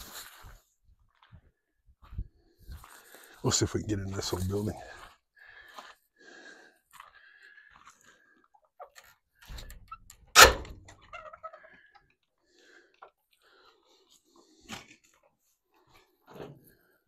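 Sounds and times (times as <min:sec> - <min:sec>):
door hinges squeaking: 0:09.4 - 0:11.8
loud door thump: 0:10.3 - 0:10.9.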